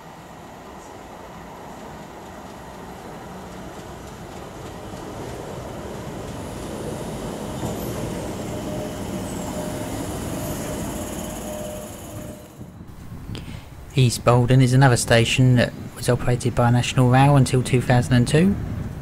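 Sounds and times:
train running into station: 0.0s - 19.0s
thin steady whine: 6.9s - 14.1s.

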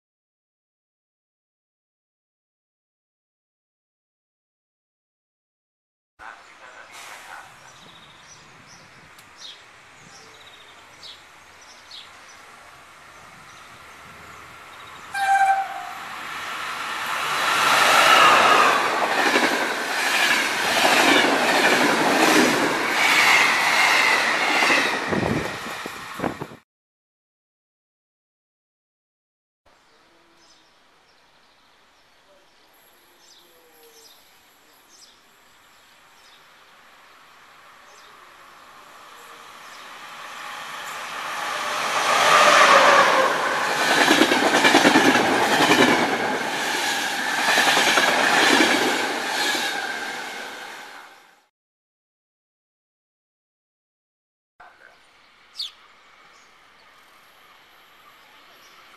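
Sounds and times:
small birds chirping: 6.2s - 15.1s, 54.6s - 57.2s
train rail noise: 6.2s - 26.6s, 36.7s - 51.4s
train horn blast: 15.1s - 16.1s
bird chirps: 54.8s - 56.9s.

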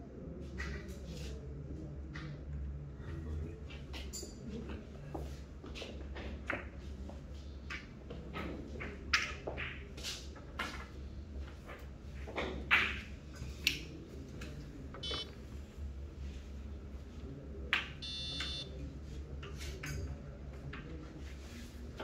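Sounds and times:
short high beeps: 15.0s - 15.3s, 18.0s - 18.7s.

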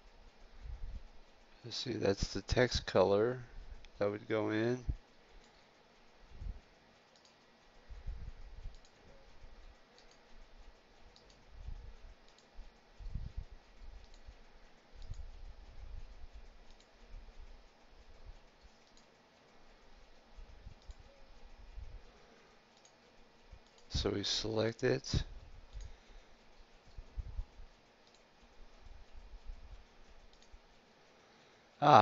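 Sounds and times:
computer mouse clicks: 5.0s - 24.0s, 25.4s - 30.9s.

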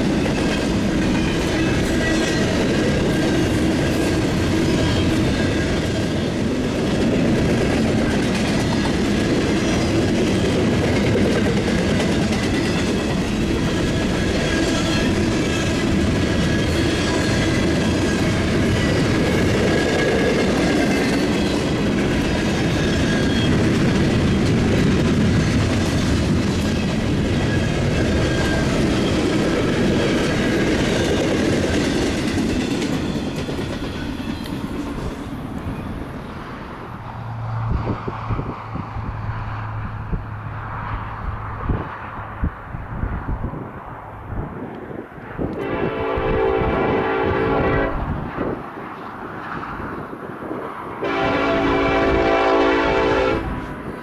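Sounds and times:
train wheels clattering on rails: 0.0s - 36.4s
high wheel squeal: 12.6s - 19.2s, 22.6s - 23.7s.

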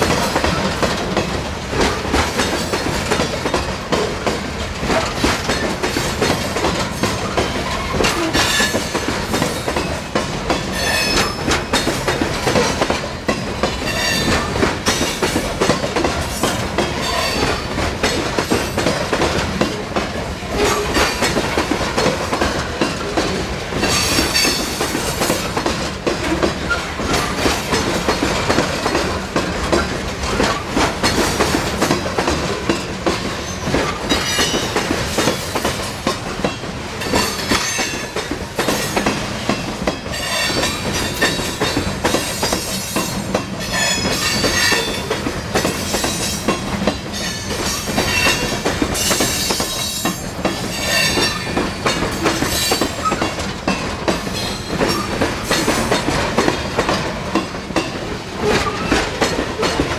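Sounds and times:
train wheels rumbling and clacking: 0.0s - 59.9s.

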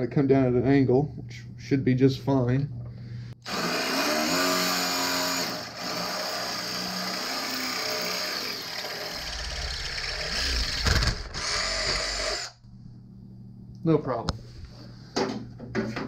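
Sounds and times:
drill bit grinding through metal: 3.4s - 12.6s
power drill whine: 3.4s - 12.6s.

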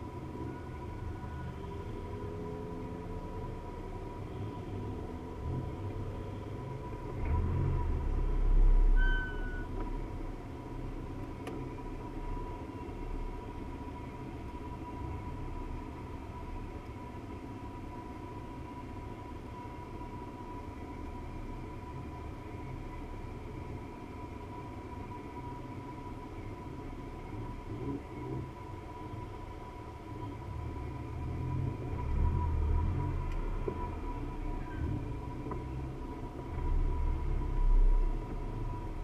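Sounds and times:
car engine idling: 0.0s - 39.0s
faint whine: 0.0s - 39.0s
short high squeak: 9.0s - 9.7s.

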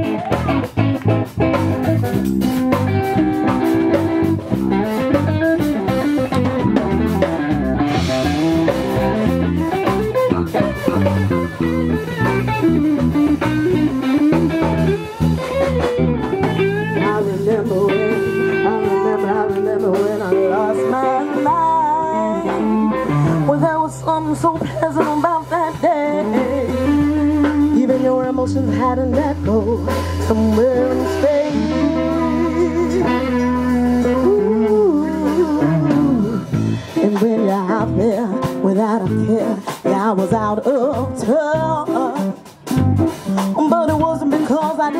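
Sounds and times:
blues band playing: 0.0s - 44.9s
woman singing: 16.5s - 42.5s, 43.1s - 44.9s.

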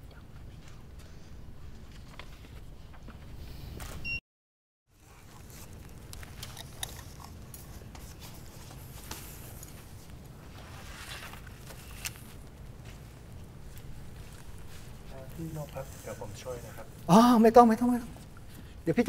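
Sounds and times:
camera gear rustling and scraping: 5.0s - 17.1s
low room hum: 5.0s - 19.0s.

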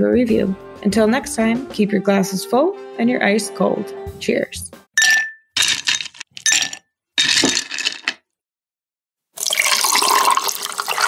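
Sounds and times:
ice cubes clinking into glass: 5.0s - 8.2s, 9.4s - 11.0s
drink pouring into glass: 9.4s - 11.0s.

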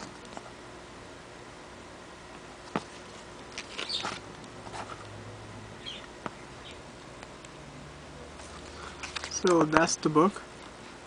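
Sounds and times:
paper pages rustling: 2.7s - 5.1s, 8.4s - 9.8s.

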